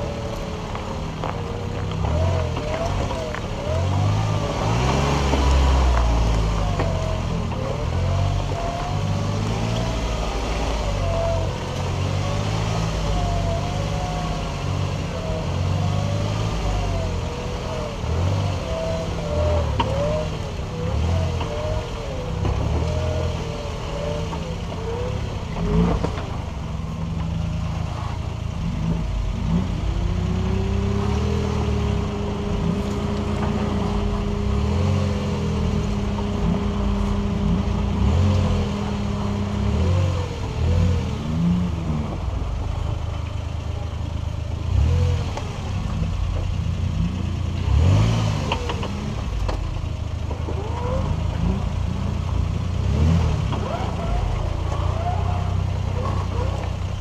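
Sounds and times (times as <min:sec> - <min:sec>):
off-road vehicle engine: 0:00.0 - 0:57.0.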